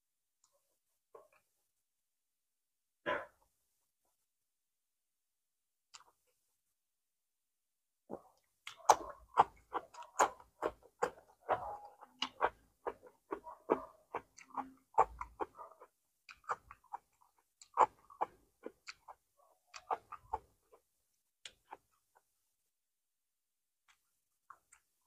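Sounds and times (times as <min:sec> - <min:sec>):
person chewing with wet smacks: 0:08.1 - 0:22.4, 0:23.8 - 0:25.0.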